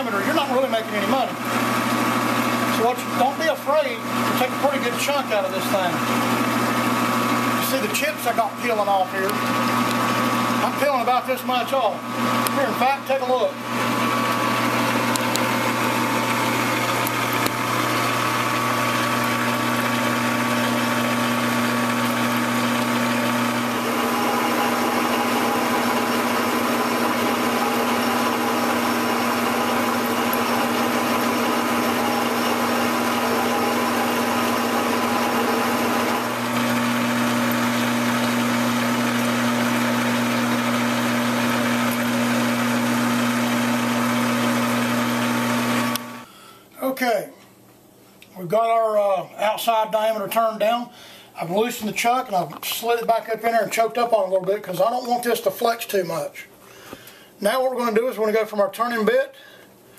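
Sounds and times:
lathe tool cutting metal: 0:00.0 - 0:11.1, 0:11.8 - 0:46.2
metal lathe motor humming: 0:00.1 - 0:07.9, 0:09.3 - 0:10.8, 0:12.0 - 0:46.2.

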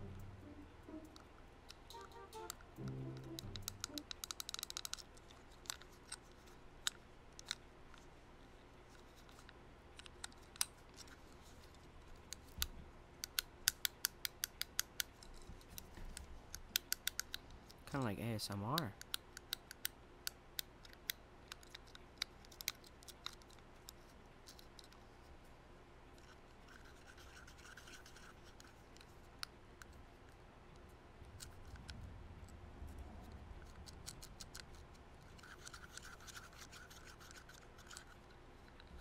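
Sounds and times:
fidget cube clicks: 0:00.9 - 0:07.6, 0:12.2 - 0:17.8, 0:18.6 - 0:25.0, 0:33.3 - 0:39.0
soft scratching and rubbing: 0:26.2 - 0:29.3, 0:34.7 - 0:39.0.

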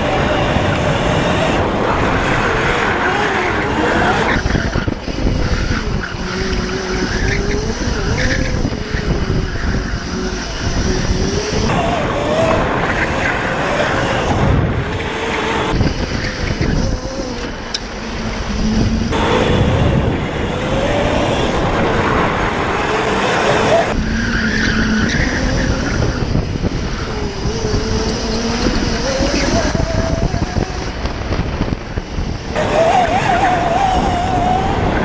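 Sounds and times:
electric motor whining: 0:00.0 - 0:24.0, 0:32.6 - 0:35.0
tires skidding: 0:00.0 - 0:31.6, 0:32.5 - 0:35.0.

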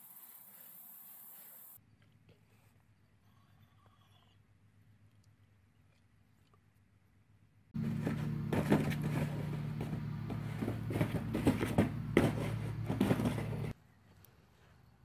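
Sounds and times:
cardboard box knocks and scrapes: 0:07.8 - 0:13.7
steady low hum: 0:07.8 - 0:13.8.

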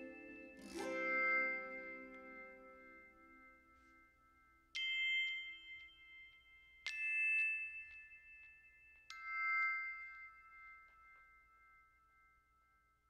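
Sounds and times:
bright chime strikes: 0:00.0 - 0:11.6.

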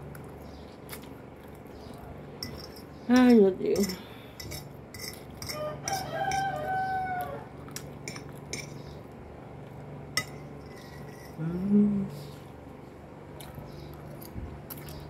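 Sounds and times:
fork clinking on glass plate: 0:02.4 - 0:06.6
rooster crowing: 0:05.4 - 0:07.6
person humming: 0:11.4 - 0:12.4.

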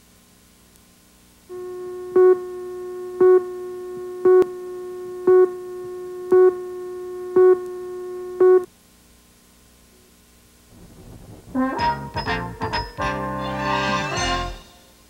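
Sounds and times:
steady electronic tone: 0:01.5 - 0:08.7
countdown beeps: 0:02.0 - 0:03.6, 0:04.2 - 0:04.5, 0:05.1 - 0:08.7.

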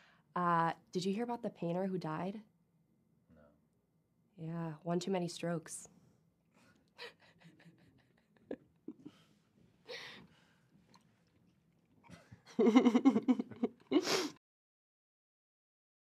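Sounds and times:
woman laughing: 0:07.0 - 0:09.2, 0:12.5 - 0:14.3.

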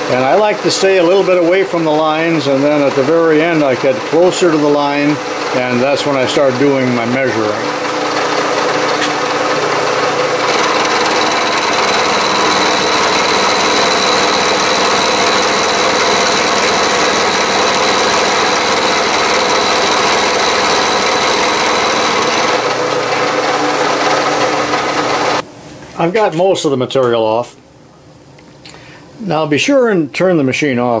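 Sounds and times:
milling machine cutting metal: 0:00.0 - 0:25.4
high steady whine: 0:00.0 - 0:26.2.

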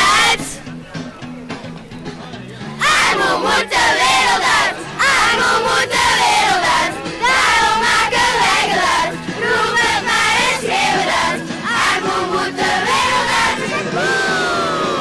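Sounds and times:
children singing together: 0:00.0 - 0:00.6, 0:02.8 - 0:15.0.

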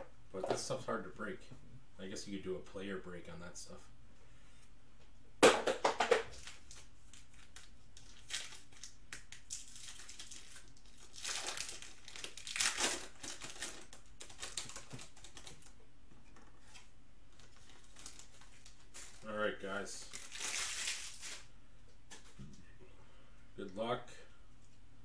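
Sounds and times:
foil pack crinkling: 0:06.3 - 0:15.8, 0:16.6 - 0:21.5.

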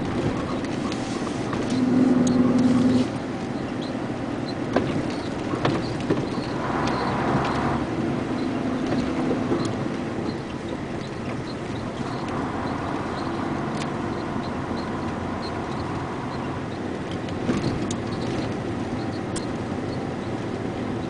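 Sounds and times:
vehicle engine and tyre noise: 0:00.0 - 0:21.0
faint clicks: 0:17.1 - 0:20.0.

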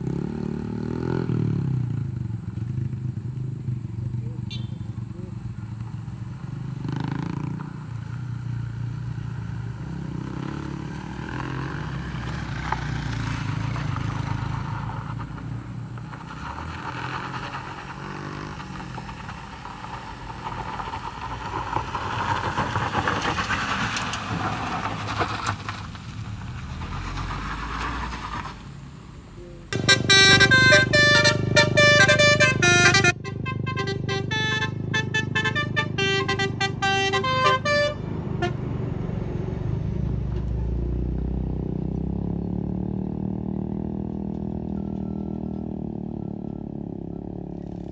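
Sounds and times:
tyres on loose gravel: 0:11.5 - 0:30.1
motorcycle engine running: 0:29.4 - 0:38.5.

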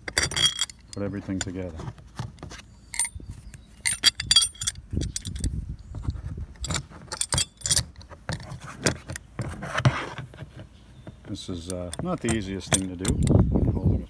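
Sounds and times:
metal plates clinking: 0:00.0 - 0:01.6, 0:03.8 - 0:05.5.

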